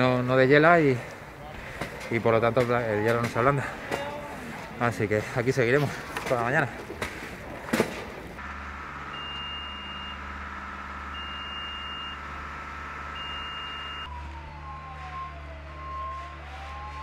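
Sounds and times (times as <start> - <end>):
diesel engine running: 7.1 - 17.0
reversing alarm beeping: 9.0 - 17.0
lower short beep: 9.2 - 10.2, 11.2 - 12.2, 13.2 - 14.1
siren sliding down in pitch: 13.0 - 17.0.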